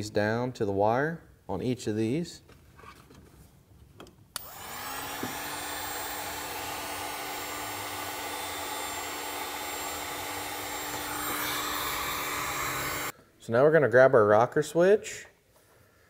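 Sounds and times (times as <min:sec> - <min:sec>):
heat gun switch click: 0:04.4 - 0:04.6
heat gun fan blowing: 0:04.4 - 0:13.1.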